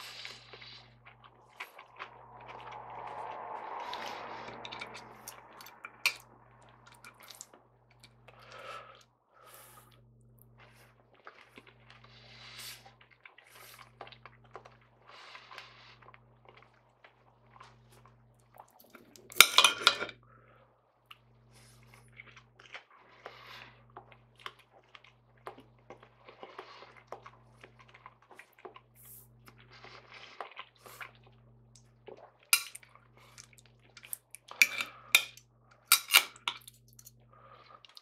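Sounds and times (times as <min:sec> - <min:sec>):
chewing and mouth noises: 0:00.0 - 0:09.1, 0:09.8 - 0:19.4, 0:21.1 - 0:38.0
cutlery clicking on a plate: 0:34.6 - 0:36.7.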